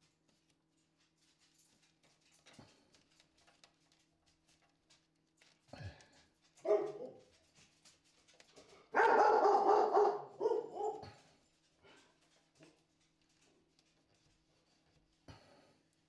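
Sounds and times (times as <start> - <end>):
dog barking: 6.6 - 7.3, 8.9 - 11.3.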